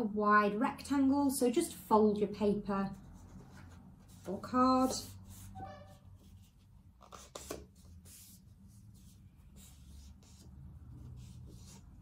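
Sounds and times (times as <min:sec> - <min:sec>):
paper being folded and creased: 0:03.2 - 0:08.4.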